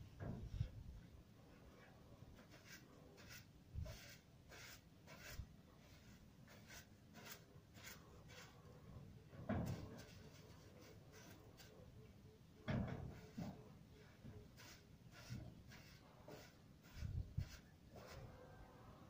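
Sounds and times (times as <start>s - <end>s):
short scraping strokes: 2.4s - 8.7s, 14.4s - 18.6s.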